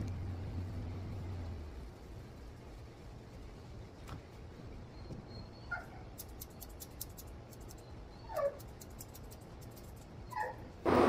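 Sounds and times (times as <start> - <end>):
shears snipping: 6.2 - 7.8
puppy whimpering: 8.1 - 8.6.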